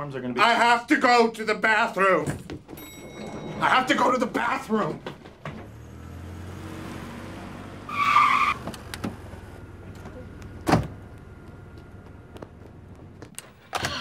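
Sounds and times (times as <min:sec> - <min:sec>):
car tyres squealing: 0:05.6 - 0:09.6
low running hum: 0:09.3 - 0:13.4.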